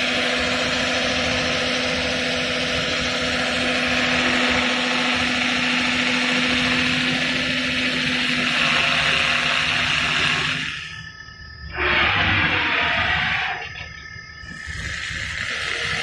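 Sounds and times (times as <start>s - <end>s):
electric motor humming: 0.0s - 16.0s
polishing wheel hissing on wood: 14.5s - 16.0s.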